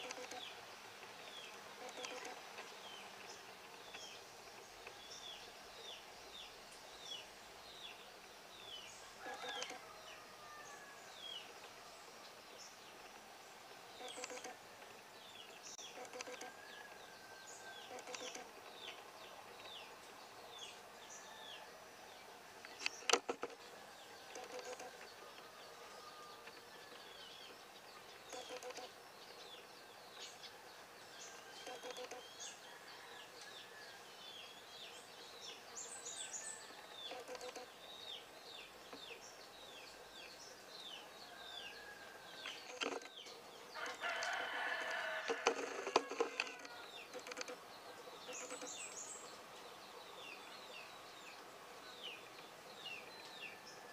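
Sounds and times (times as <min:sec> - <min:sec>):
small birds chirping: 0:00.0 - 0:53.9
sharp clicks: 0:01.8 - 0:02.4, 0:16.0 - 0:16.5, 0:17.9 - 0:18.5, 0:22.6 - 0:23.6, 0:42.4 - 0:43.2, 0:44.8 - 0:47.6
rooster crowing: 0:09.2 - 0:11.3, 0:31.3 - 0:34.1, 0:43.8 - 0:46.9.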